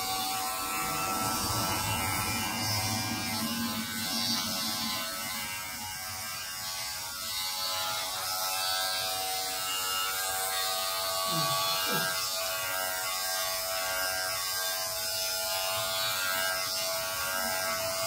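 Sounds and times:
electric hair clippers buzzing: 0:05.7 - 0:18.0.

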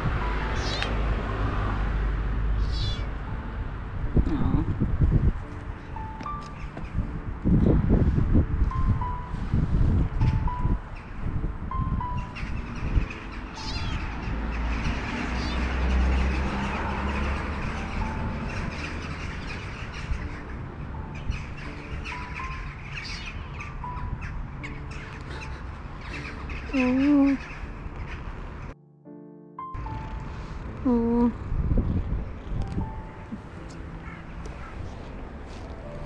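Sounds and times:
low street rumble: 0:00.0 - 0:28.8
soft background music: 0:00.0 - 0:36.0
kitten meowing: 0:02.6 - 0:03.1.

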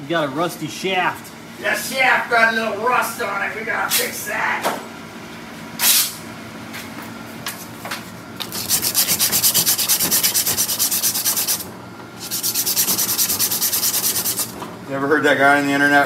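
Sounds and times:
abrasive cloth rasping on metal shaft: 0:08.5 - 0:11.6, 0:12.2 - 0:14.5.

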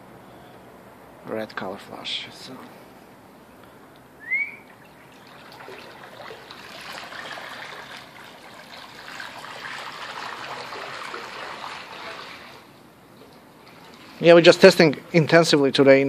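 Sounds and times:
water churning and splashing: 0:04.4 - 0:12.8, 0:13.4 - 0:14.8.

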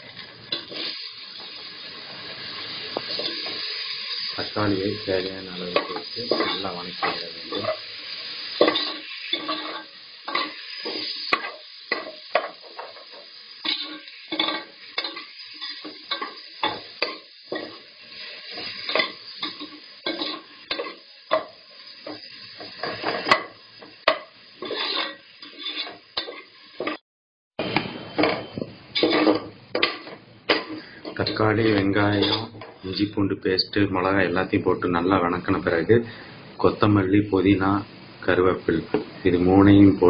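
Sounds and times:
vegetables sizzling in oil: 0:00.0 - 0:27.0, 0:27.6 - 0:40.0
metal spoon scraping a pot: 0:05.7 - 0:07.9, 0:08.5 - 0:12.5, 0:13.6 - 0:21.5, 0:24.1 - 0:27.0, 0:28.4 - 0:31.4, 0:32.0 - 0:33.2.

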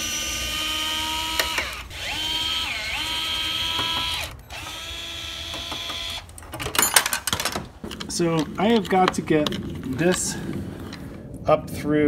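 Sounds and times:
cordless drill motor whining: 0:00.0 - 0:06.3.

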